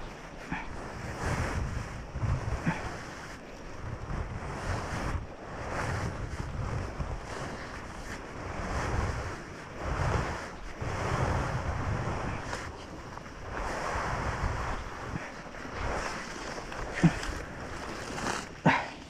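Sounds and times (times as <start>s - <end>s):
wind buffeting microphone: 0.0s - 18.8s
footsteps crunching dry leaves: 15.6s - 18.7s.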